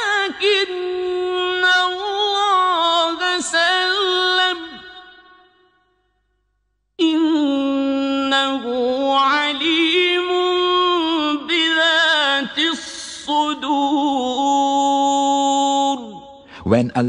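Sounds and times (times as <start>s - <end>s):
man chanting melodically: 16.0s - 17.0s.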